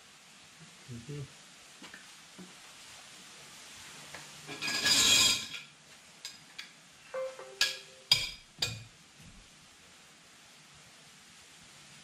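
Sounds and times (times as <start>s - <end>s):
metal tools clattering: 4.5s - 5.6s.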